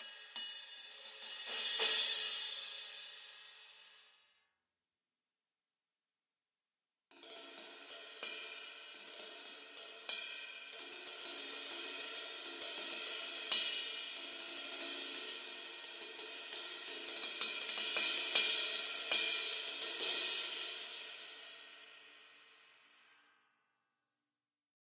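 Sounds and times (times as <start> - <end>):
cymbals struck with drumsticks: 0.0 - 3.6.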